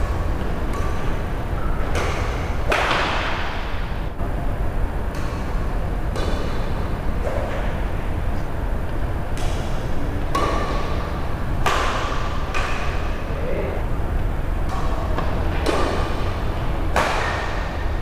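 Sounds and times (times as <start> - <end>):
racket hitting shuttlecock: 0.0 - 3.8, 5.1 - 7.8, 8.9 - 13.2, 14.6 - 18.0
steady low rumble: 0.0 - 17.0.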